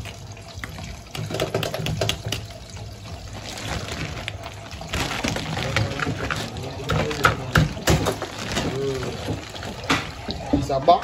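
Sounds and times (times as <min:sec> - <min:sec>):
tap water pouring into bowl: 0:00.0 - 0:11.0
wet plastic bag crinkling: 0:02.6 - 0:11.0.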